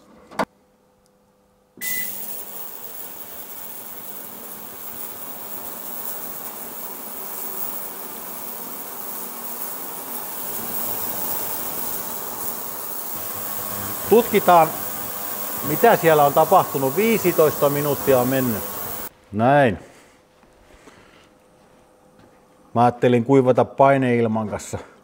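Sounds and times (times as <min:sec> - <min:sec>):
short beep: 0:01.8 - 0:02.2
ultrasonic cleaner hissing buzz: 0:01.8 - 0:19.1.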